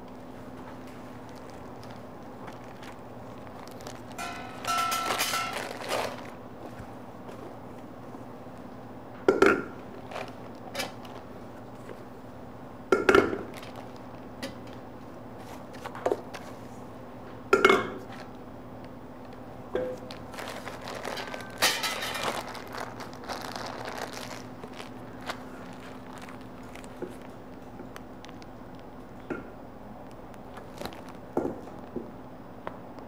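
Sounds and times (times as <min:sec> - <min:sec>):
steady low hum: 0:00.0 - 0:33.0
metal kitchenware clanking: 0:04.2 - 0:06.2, 0:21.2 - 0:22.4.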